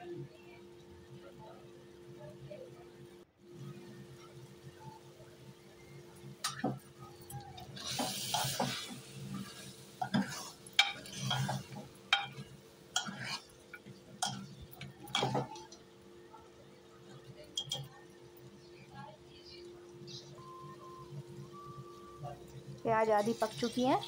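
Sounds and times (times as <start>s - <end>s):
food sizzling in a pot: 3.4s - 24.0s
metal spoon scraping a pot: 7.8s - 12.4s, 13.0s - 13.5s.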